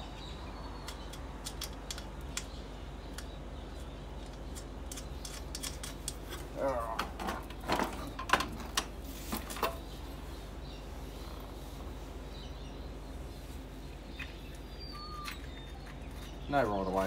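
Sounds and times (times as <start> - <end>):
low steady hum: 0.0 - 17.0
faint bird chirp: 9.6 - 17.0.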